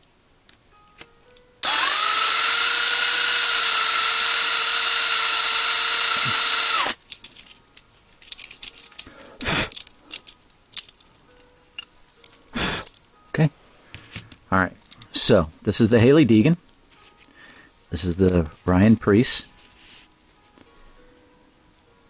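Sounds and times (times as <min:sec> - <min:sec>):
cordless drill whining: 0:01.6 - 0:07.0
light clicks of metal parts: 0:07.0 - 0:13.1, 0:14.7 - 0:16.0, 0:16.7 - 0:18.7.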